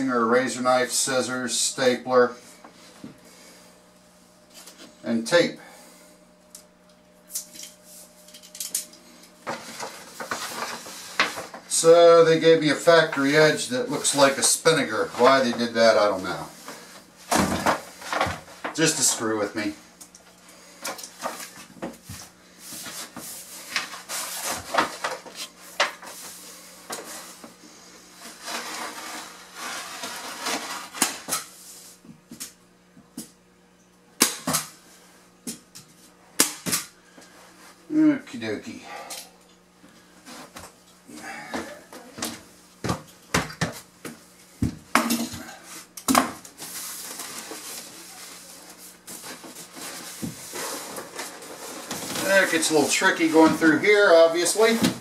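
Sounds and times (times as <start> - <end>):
paper roll knocking and thudding: 17.3 - 18.9
paper rustling and scuffing: 45.8 - 55.0.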